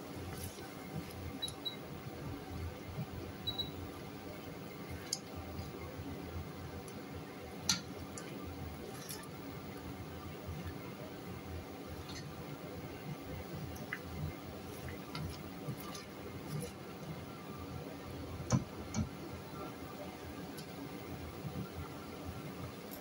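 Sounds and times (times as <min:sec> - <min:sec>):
thick sauce squelching: 0:13.6 - 0:17.0.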